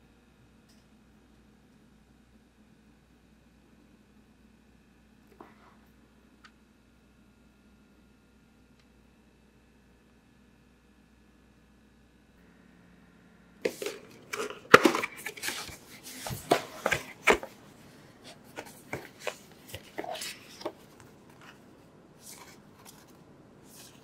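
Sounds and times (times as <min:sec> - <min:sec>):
paper and cardboard rustling: 0:13.7 - 0:24.0.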